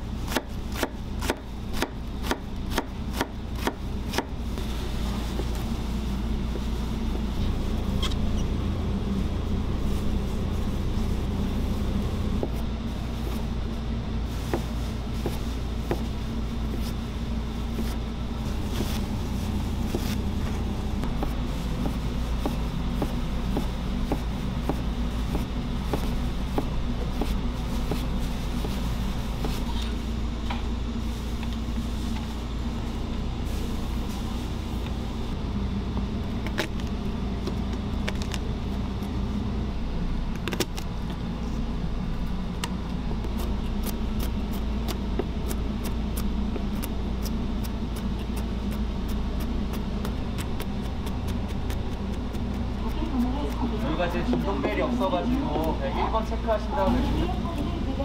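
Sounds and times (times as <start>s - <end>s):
steady low hum: 0.0s - 58.0s
knife chopping on cutting board: 0.3s - 4.3s, 15.2s - 16.0s.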